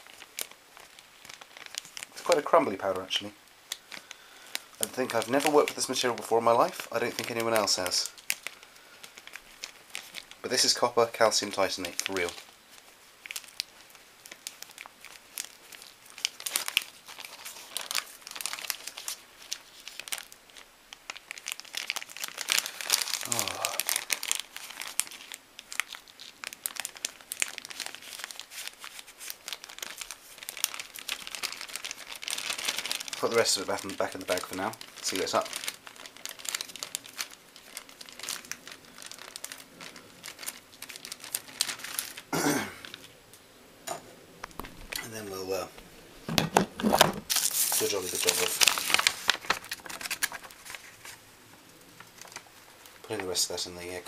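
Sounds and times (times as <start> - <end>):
powder pouring: 0.0 - 12.4, 46.3 - 51.2
plastic bag crinkling: 0.0 - 43.3, 44.4 - 54.0.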